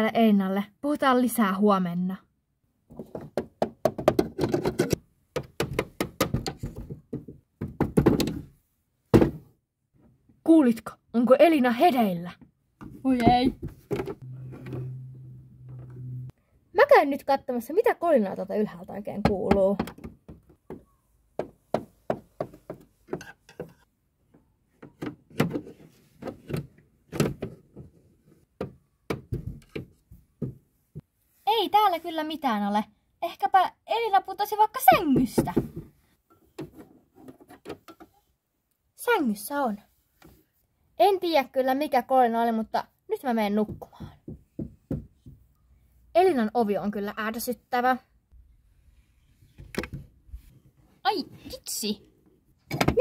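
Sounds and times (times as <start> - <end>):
toy boots tapping on wood: 3.0 - 4.4, 19.2 - 23.8.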